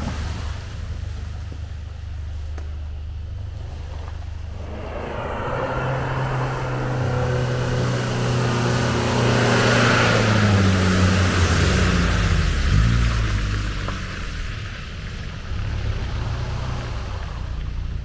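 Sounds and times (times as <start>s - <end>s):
off-road vehicle engine: 0.0s - 18.0s
rush of noise: 3.6s - 12.2s.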